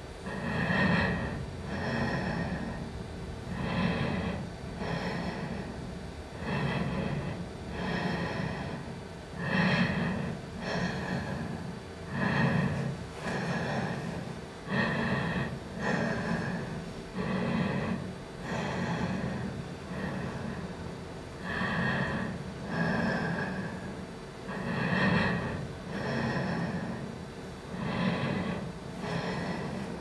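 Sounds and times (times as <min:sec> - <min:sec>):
rhythmic breathing: 0:00.0 - 0:30.0.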